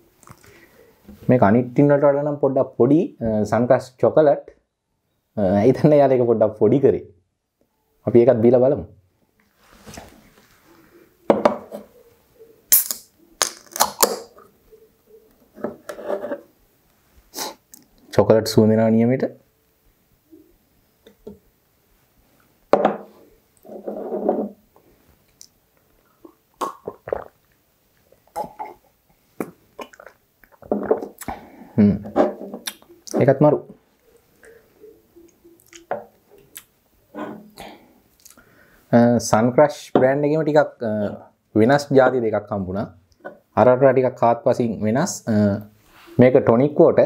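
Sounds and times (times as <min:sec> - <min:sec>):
glass set down on wooden table: 0:11.3 - 0:11.8, 0:22.7 - 0:23.1
person sipping and swallowing: 0:25.4 - 0:31.8.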